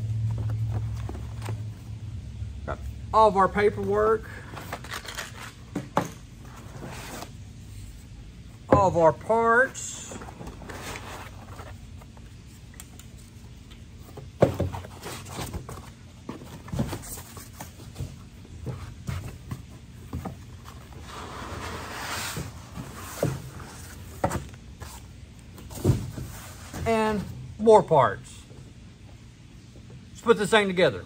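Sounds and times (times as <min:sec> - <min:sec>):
foam and cardboard rustling: 0:08.8 - 0:12.6, 0:14.0 - 0:27.4.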